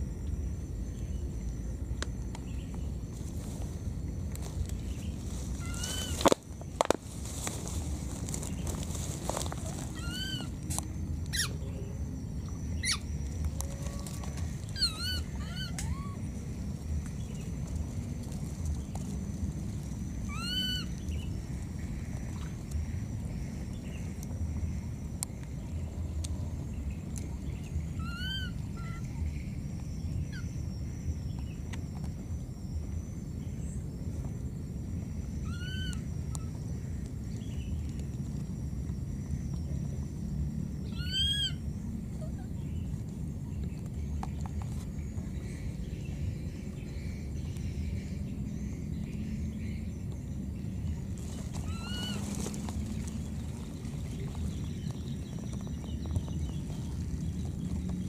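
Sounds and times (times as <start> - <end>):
baby monkey squeaking calls: 10.0 - 10.5, 11.3 - 11.5, 12.8 - 13.0, 14.7 - 16.2, 20.3 - 20.9, 28.0 - 29.0, 40.9 - 41.6, 51.7 - 52.2.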